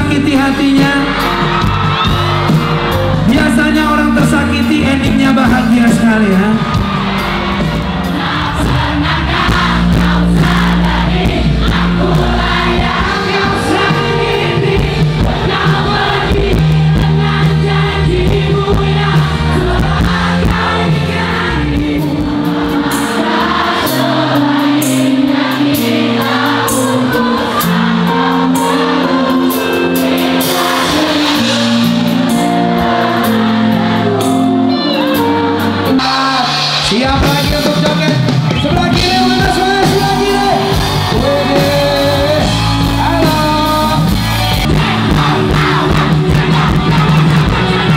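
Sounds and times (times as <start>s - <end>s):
man singing into a microphone: 0.0s - 1.4s, 3.2s - 6.6s, 30.8s - 32.4s, 34.2s - 44.1s
crowd singing along: 0.0s - 47.9s
live pop band: 0.0s - 47.9s.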